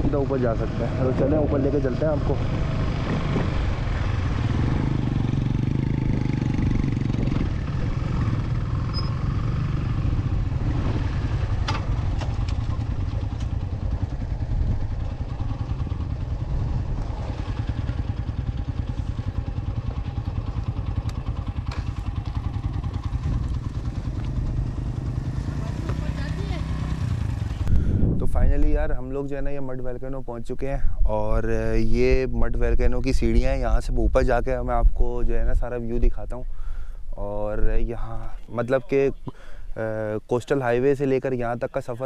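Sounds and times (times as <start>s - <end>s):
motorcycle engine idling: 2.3s - 28.1s.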